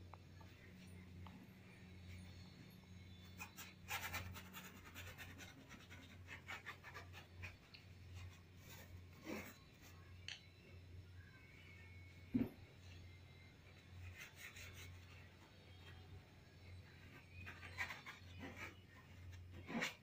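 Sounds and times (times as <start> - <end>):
paintbrush scratching on canvas: 3.3 - 10.1, 14.0 - 20.0
low steady hum: 6.9 - 20.0.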